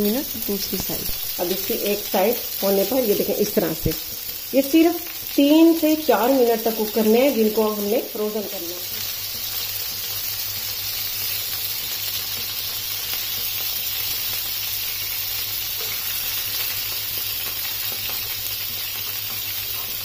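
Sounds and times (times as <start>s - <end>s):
meat sizzling in oil: 0.0s - 20.0s.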